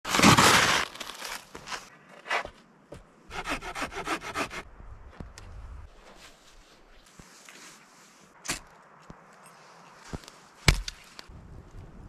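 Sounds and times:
hand saw cutting wood: 0.1s - 0.9s, 3.3s - 4.6s.

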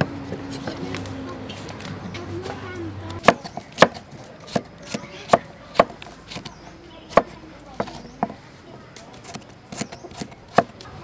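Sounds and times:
knife chopping on wooden board: 3.1s - 8.4s, 9.2s - 10.8s.

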